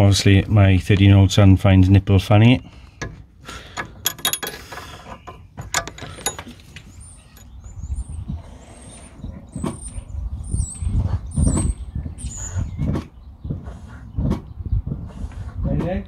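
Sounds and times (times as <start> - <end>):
spanner clicking on metal: 3.7 - 4.9, 5.6 - 6.6.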